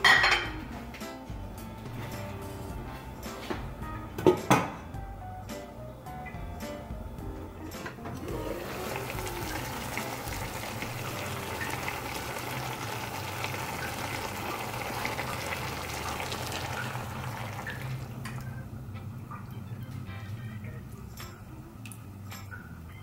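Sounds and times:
pan simmering bubbling: 0.0s - 20.4s
liquid pouring into pan: 8.2s - 18.5s.

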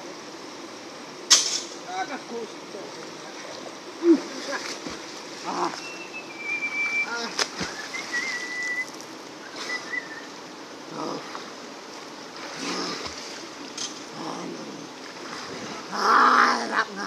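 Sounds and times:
river water rushing: 2.5s - 16.7s
people splashing in water: 3.4s - 5.9s, 6.7s - 9.0s, 12.4s - 13.7s
short high whistles: 5.8s - 10.3s.

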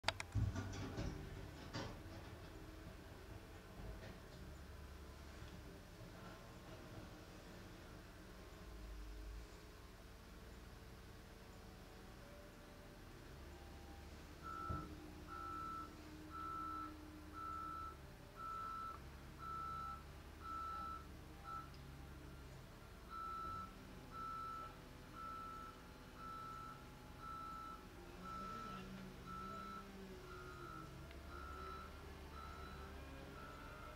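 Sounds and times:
diesel engines humming: 0.5s - 33.9s
reversing alarm beeping: 14.4s - 21.7s, 23.1s - 33.9s.

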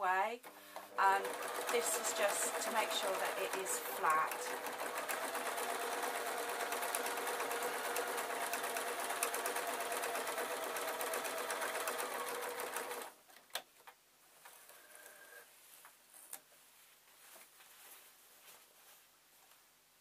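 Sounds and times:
sewing machine stitching: 0.4s - 13.1s
fabric rustling: 15.5s - 19.8s.

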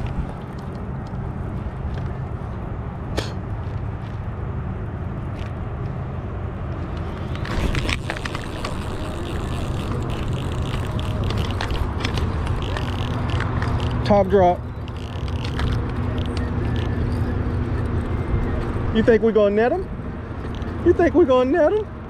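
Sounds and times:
reel clicking and whirring: 7.2s - 18.7s
fishing reel cranking: 7.4s - 17.9s.

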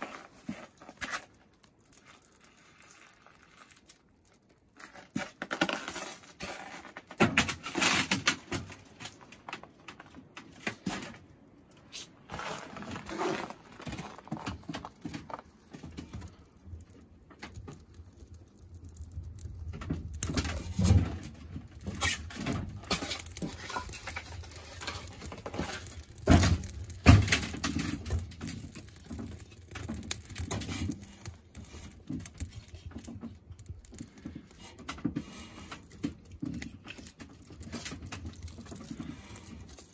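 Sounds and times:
kindling clattering on wood and metal: 18.9s - 39.9s.

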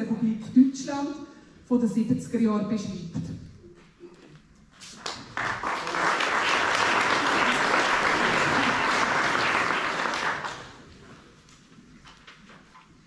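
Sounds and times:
audience applause: 5.0s - 10.9s.

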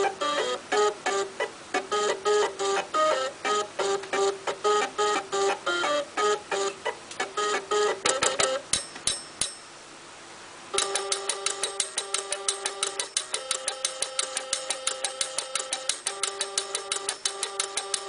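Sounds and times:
stepper motors playing a tune: 0.0s - 8.7s, 10.8s - 18.0s.

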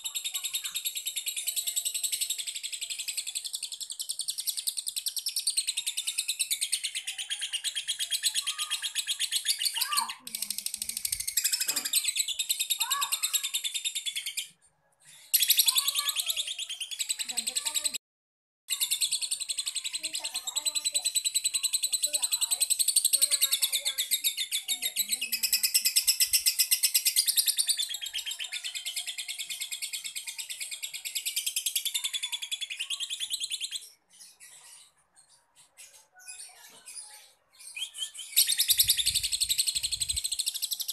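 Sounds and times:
lovebird chattering trill: 38.2s - 40.9s.

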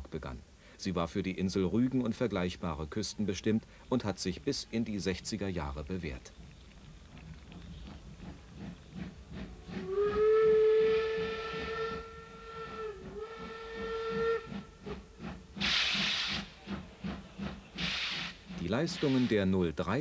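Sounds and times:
steam locomotive exhaust chuffs: 7.5s - 19.8s
steam venting hiss: 8.1s - 19.8s
steam whistle: 9.5s - 16.5s.

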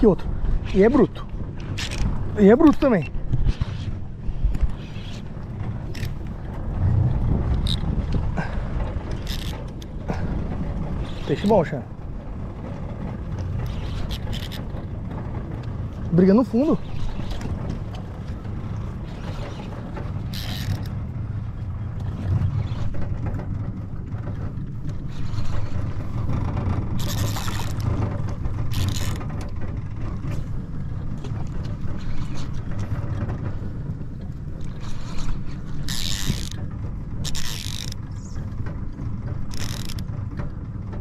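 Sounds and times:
fishing reel ratcheting: 7.6s - 7.8s, 9.1s - 9.6s, 13.6s - 14.7s, 20.3s - 20.9s, 27.0s - 28.0s, 28.7s - 29.2s, 34.6s - 38.0s, 39.5s - 40.1s.

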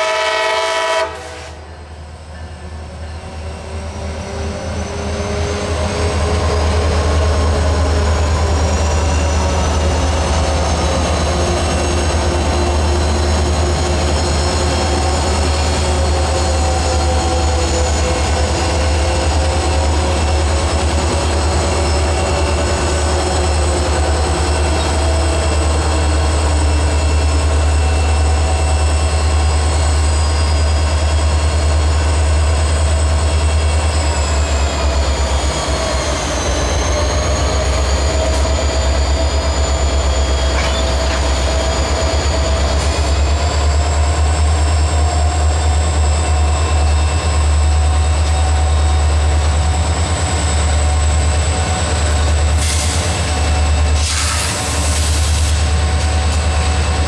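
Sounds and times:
diesel locomotives passing slowly: 0.0s - 57.0s.

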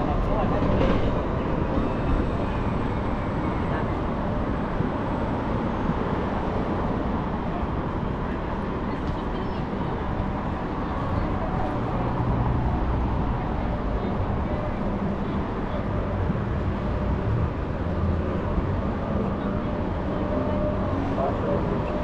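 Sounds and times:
city traffic rumble: 0.0s - 22.0s
murmur of voices: 18.3s - 22.0s.

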